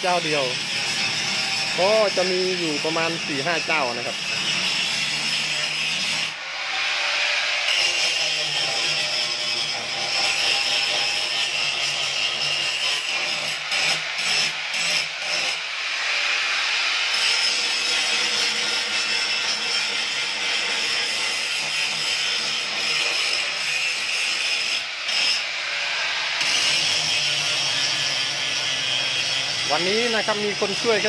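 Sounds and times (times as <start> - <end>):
power tool sanding wood: 0.0 - 31.0.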